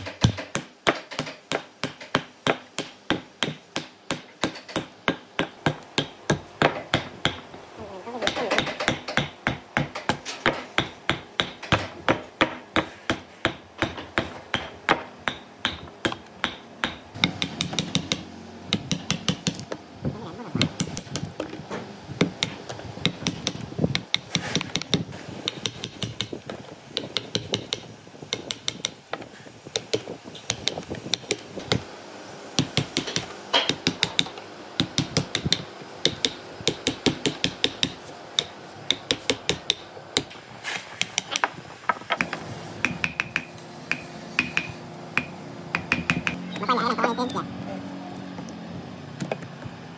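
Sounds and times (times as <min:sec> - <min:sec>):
mallet striking chisel: 0:00.0 - 0:07.5, 0:08.2 - 0:19.6, 0:42.2 - 0:46.4.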